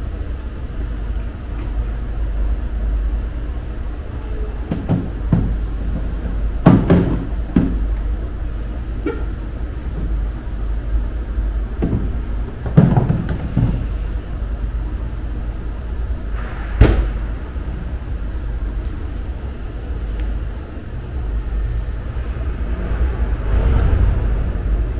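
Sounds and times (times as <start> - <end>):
steady low hum: 0.0 - 24.9
hollow plastic thumps: 4.7 - 7.8, 11.8 - 13.9.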